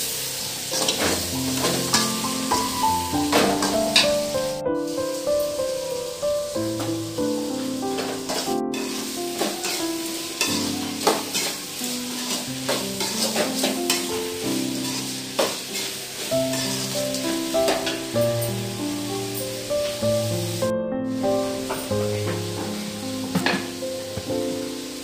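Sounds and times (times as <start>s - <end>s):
onions sizzling in oil: 0.0s - 25.0s
ladle scraping a pan: 0.7s - 2.3s, 8.0s - 18.6s
background music: 1.0s - 15.3s, 16.4s - 25.0s.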